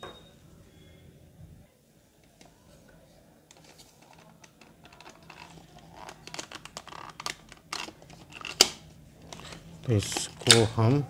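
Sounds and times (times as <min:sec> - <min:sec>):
plastic clicks creaks and scrapes: 0:03.5 - 0:10.7.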